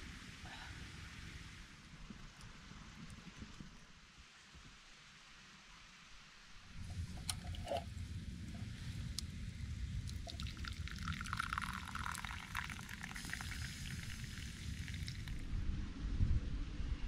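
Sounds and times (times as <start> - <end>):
liquid pouring and splashing: 6.8 - 9.2, 10.0 - 15.4
low rumble: 15.3 - 17.0.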